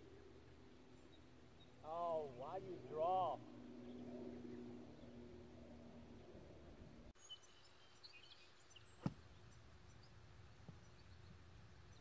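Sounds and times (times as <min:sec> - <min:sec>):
faint bird chirps: 0:07.2 - 0:12.0
golf club hitting ball from sand: 0:09.0 - 0:09.2.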